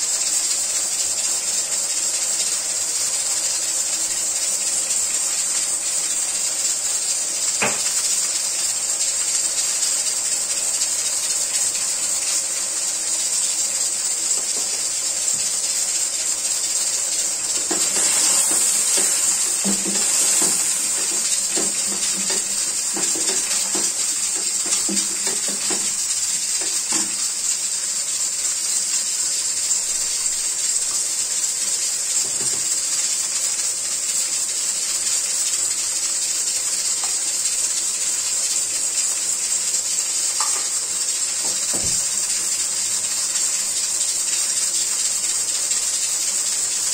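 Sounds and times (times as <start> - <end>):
liver and onions sizzling in a pan: 0.0 - 46.9
spatula knocking and scraping pan: 17.4 - 27.3, 40.4 - 40.8.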